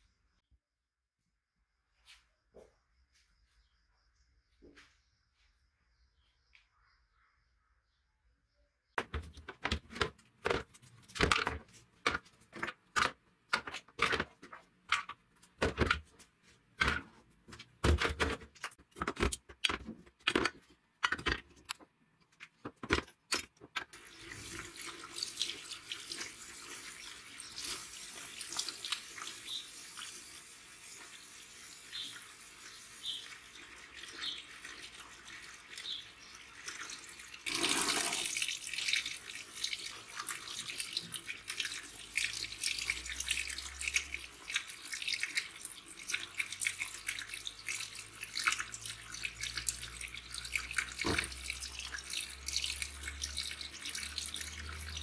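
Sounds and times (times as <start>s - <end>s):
parts clacking in plastic tub: 9.0s - 16.1s, 16.7s - 23.9s
tap water running into tub: 23.7s - 55.0s.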